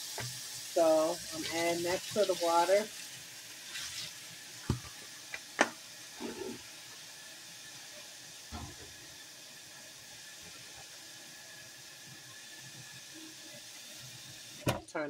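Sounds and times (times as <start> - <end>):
tap water running into sink: 1.0 - 6.6, 8.5 - 9.1.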